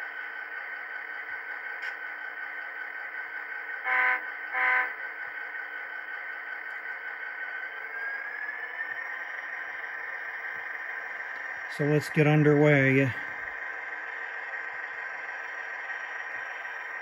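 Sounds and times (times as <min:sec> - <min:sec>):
model locomotive diesel engine idling: 0:00.0 - 0:17.0
rising whine: 0:01.3 - 0:17.0
locomotive horn blasts: 0:03.8 - 0:05.0.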